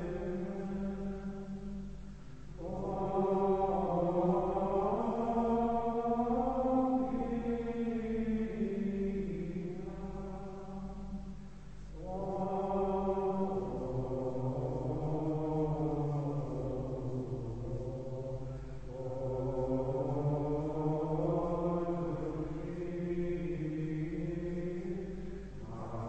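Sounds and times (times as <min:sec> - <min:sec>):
men chanting in unison: 0:12.0 - 0:26.0.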